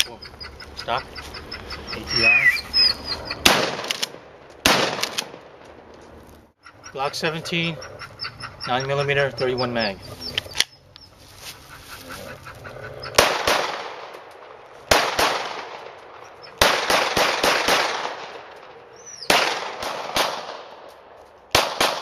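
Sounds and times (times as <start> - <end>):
pistol shots echoing: 3.4 - 5.7, 13.2 - 20.9, 21.5 - 22.0.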